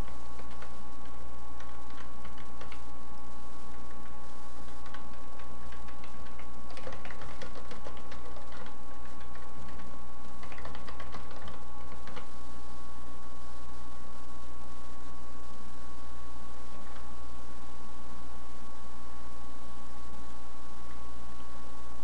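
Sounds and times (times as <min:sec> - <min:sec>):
computer keyboard typing: 0:00.0 - 0:03.0, 0:03.7 - 0:12.4
steady low hum: 0:00.0 - 0:22.0.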